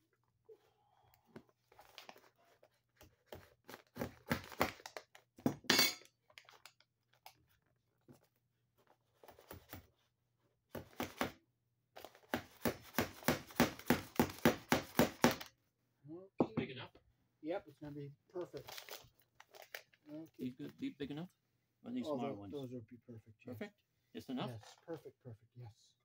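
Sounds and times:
hammer tapping staples into wood: 0:12.3 - 0:15.5.

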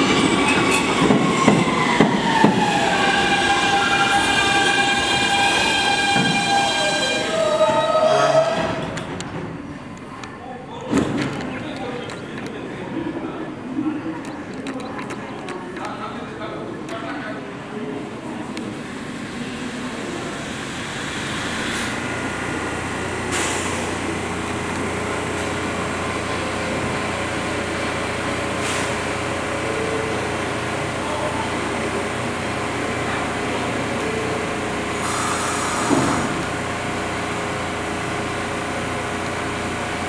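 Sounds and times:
subway train equipment hum: 0:00.0 - 0:40.0
air hisses: 0:35.0 - 0:36.3.

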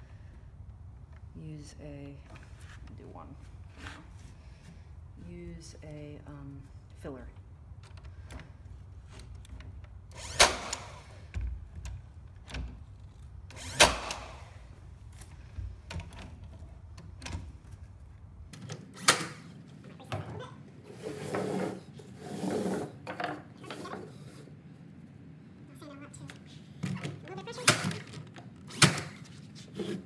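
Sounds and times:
nail gun shots: 0:10.2 - 0:11.2, 0:13.6 - 0:14.5, 0:19.0 - 0:19.4, 0:28.7 - 0:29.2.

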